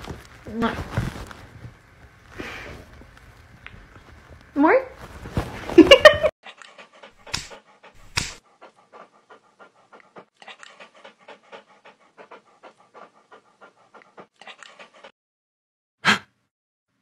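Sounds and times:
dog panting: 0:06.4 - 0:15.1.

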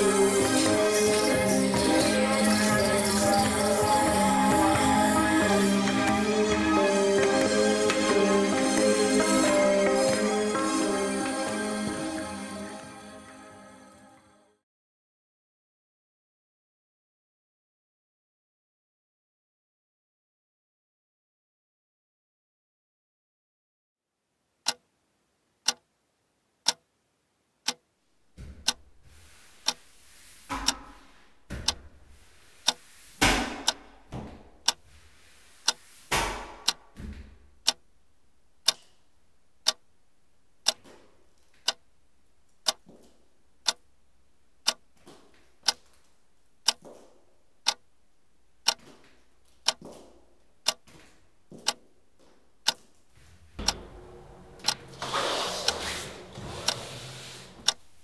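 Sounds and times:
clock-like ticks: 0:00.0 - 0:06.5, 0:24.6 - 0:24.8, 0:25.6 - 0:25.8, 0:26.6 - 0:26.8, 0:27.6 - 0:27.8, 0:28.5 - 0:28.8, 0:29.6 - 0:29.8, 0:30.5 - 0:31.0, 0:31.6 - 0:31.8, 0:32.6 - 0:34.0, 0:34.6 - 0:34.8, 0:35.6 - 0:36.8, 0:37.6 - 0:37.8, 0:38.6 - 0:38.8, 0:39.6 - 0:39.8, 0:40.6 - 0:40.8, 0:41.6 - 0:41.8, 0:42.6 - 0:42.9, 0:43.6 - 0:43.8, 0:44.6 - 0:44.8, 0:45.6 - 0:45.9, 0:46.6 - 0:46.9, 0:47.6 - 0:47.8, 0:48.6 - 0:48.9, 0:49.6 - 0:49.9, 0:50.6 - 0:50.8, 0:51.6 - 0:51.8, 0:52.6 - 0:52.9, 0:53.6 - 0:57.8.

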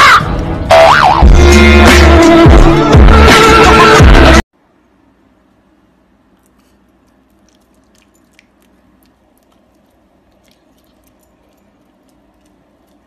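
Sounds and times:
dog chewing a treat: 0:06.4 - 0:13.0.

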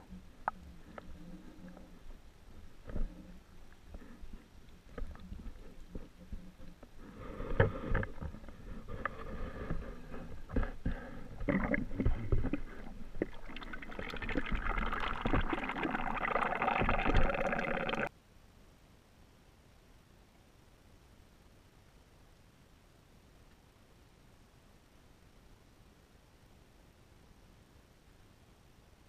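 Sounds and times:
muffled underwater rumbling: 0:00.0 - 0:18.1
rushing water noise: 0:11.4 - 0:18.1.

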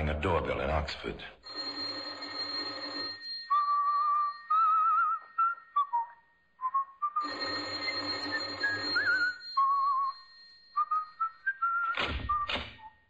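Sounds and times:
electric doorbell ringing: 0:01.4 - 0:04.5, 0:07.2 - 0:10.8
person whistling a tune: 0:03.5 - 0:07.4, 0:08.1 - 0:13.0.

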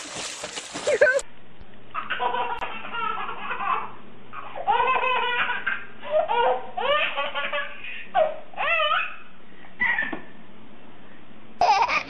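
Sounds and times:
baby giggling: 0:02.0 - 0:09.1, 0:11.6 - 0:12.0.

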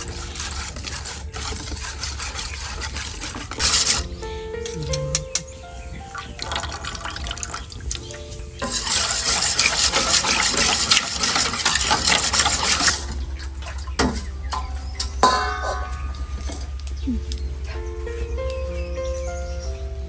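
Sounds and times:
background music with beat: 0:04.0 - 0:06.1
sharp clicks: 0:04.6 - 0:05.6.

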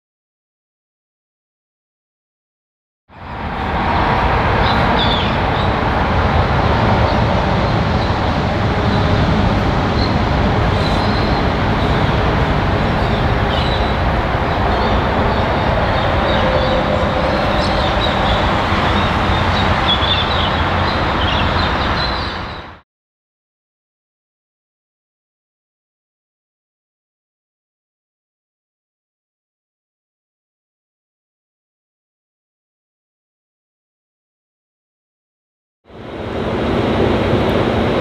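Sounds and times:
diesel locomotive rumbling: 0:03.2 - 0:22.8, 0:35.9 - 0:38.0.

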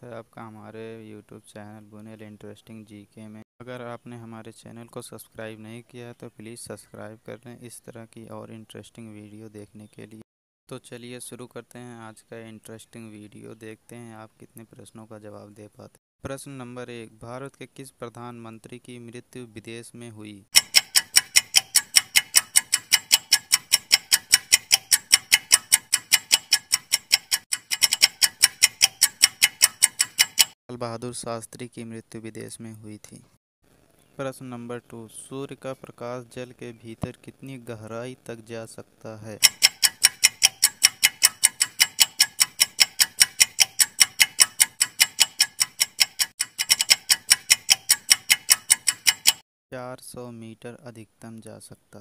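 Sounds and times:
rapid clock ticks: 0:20.6 - 0:30.6, 0:39.4 - 0:49.4.

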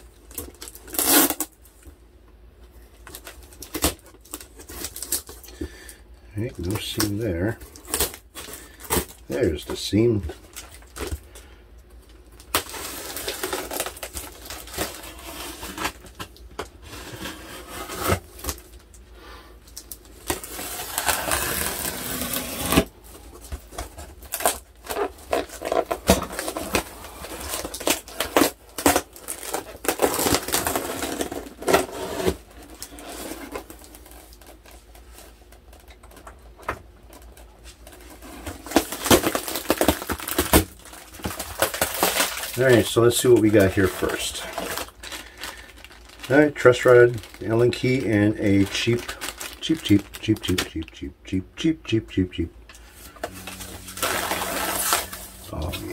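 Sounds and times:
knife cutting packing tape: 0:00.3 - 0:01.5, 0:20.3 - 0:22.9, 0:24.3 - 0:33.7, 0:53.3 - 0:55.9
tape tearing: 0:00.3 - 0:01.6, 0:03.0 - 0:05.5, 0:06.5 - 0:09.8, 0:12.4 - 0:18.8, 0:19.8 - 0:22.9, 0:23.7 - 0:36.3, 0:37.1 - 0:50.8, 0:53.0 - 0:55.9.

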